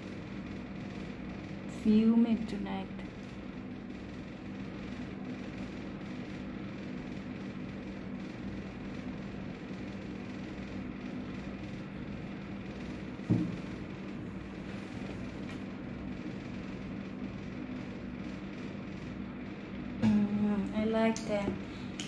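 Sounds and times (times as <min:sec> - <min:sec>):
air conditioner humming: 0:00.0 - 0:22.0.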